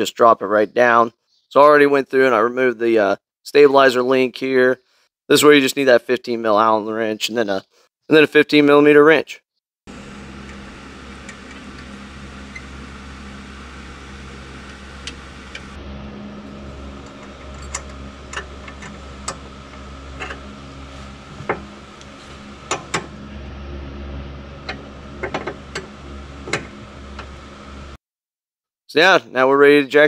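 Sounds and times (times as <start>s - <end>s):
low background hum: 9.9s - 28.0s.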